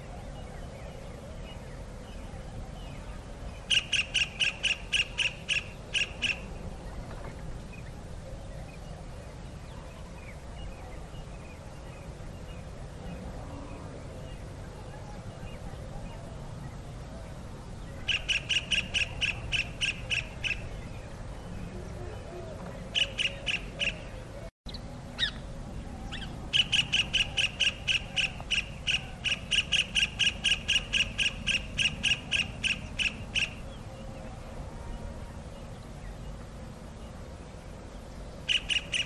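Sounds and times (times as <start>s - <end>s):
kingfisher piping calls: 3.7s - 6.5s, 18.0s - 20.7s, 22.9s - 24.1s, 26.1s - 33.6s, 38.4s - 39.0s.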